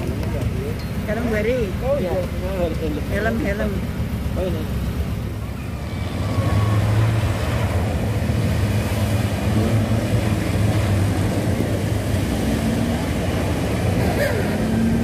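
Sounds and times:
off-road engines droning: 0:00.0 - 0:15.0
water splashing: 0:05.9 - 0:14.0.

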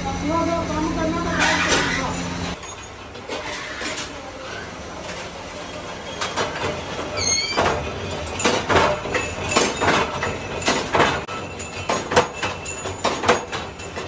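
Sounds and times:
machine running noise: 0:00.0 - 0:14.0
high squeak: 0:01.2 - 0:02.8, 0:07.2 - 0:07.8.

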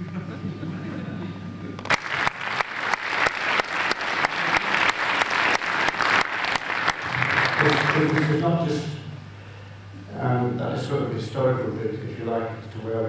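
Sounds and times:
audience applauding: 0:01.8 - 0:08.4.

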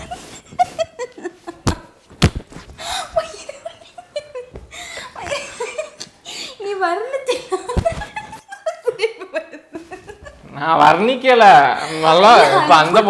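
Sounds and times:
woman laughing hard: 0:00.0 - 0:02.0, 0:02.8 - 0:06.1.

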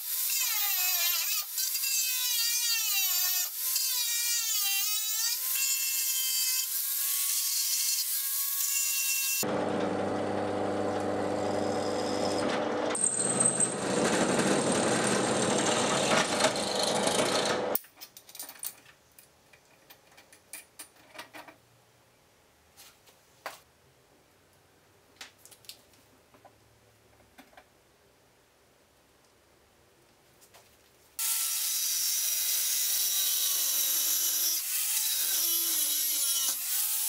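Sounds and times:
drill press drilling metal: 0:09.8 - 0:17.8
high drill squeal: 0:11.4 - 0:12.4, 0:13.0 - 0:15.8
metal parts clicking and knocking: 0:17.8 - 0:21.6.

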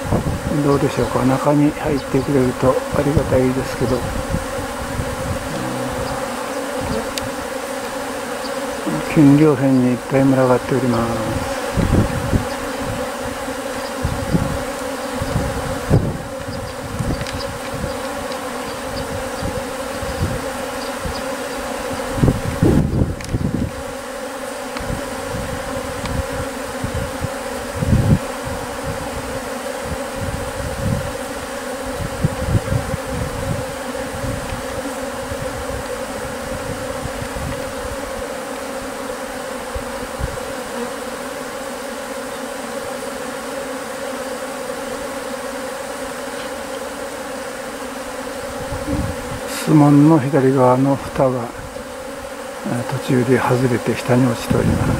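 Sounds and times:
bee swarm buzzing: 0:00.0 - 0:54.9
low thumps: 0:05.1 - 0:07.1.

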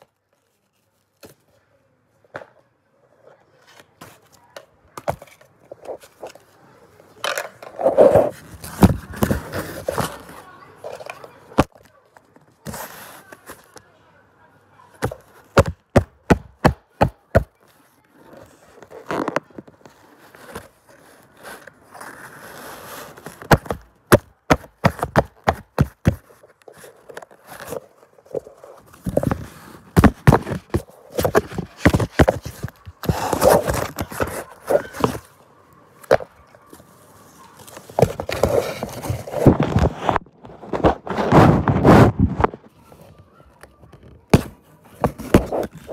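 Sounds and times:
sharp knocks and thuds: 0:15.0 - 0:17.5, 0:29.0 - 0:34.3
rustling: 0:17.2 - 0:35.4.

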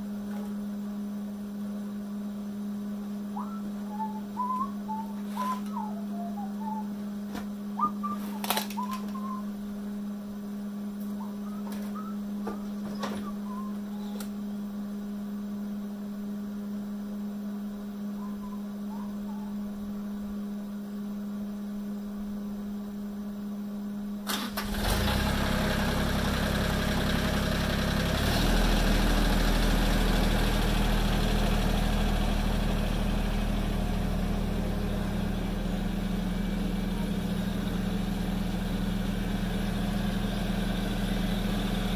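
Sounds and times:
steady hum: 0:00.0 - 0:24.3, 0:30.1 - 0:41.9
tractor diesel engine starting and running: 0:24.2 - 0:41.9.

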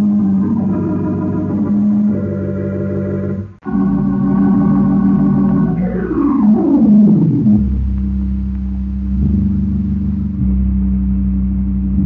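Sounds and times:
sliding tone falling in pitch: 0:00.0 - 0:08.4
low rumbling drone: 0:00.0 - 0:12.0
organ playing sustained chords: 0:00.0 - 0:12.0.

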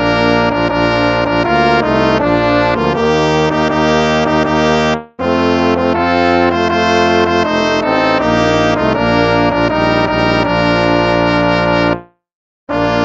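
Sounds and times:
instrumental hymn music: 0:00.0 - 0:13.0.

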